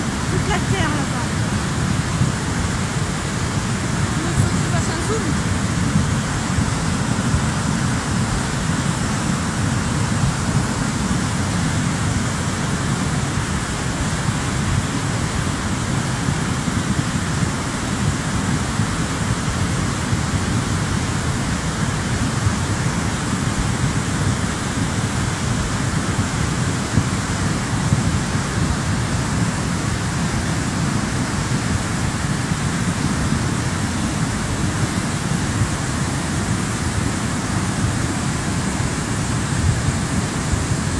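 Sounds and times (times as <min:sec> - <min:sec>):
deep rumble of water: 0:00.0 - 0:40.9
flooded river rushing: 0:00.0 - 0:40.9.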